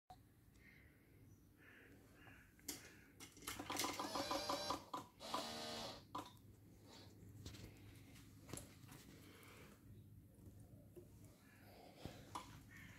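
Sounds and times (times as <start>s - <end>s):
mechanical ticking and whirring: 3.6s - 6.4s.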